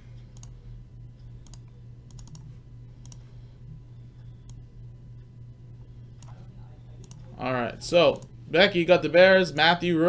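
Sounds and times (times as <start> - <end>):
steady low hum: 0.0 - 10.0
computer mouse clicking: 0.3 - 0.6, 1.4 - 3.3, 6.1 - 6.4, 7.0 - 7.3.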